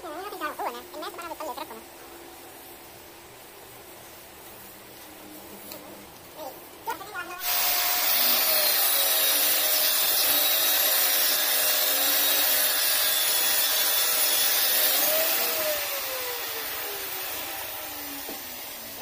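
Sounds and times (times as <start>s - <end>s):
power tool hissing and humming: 7.4s - 19.0s.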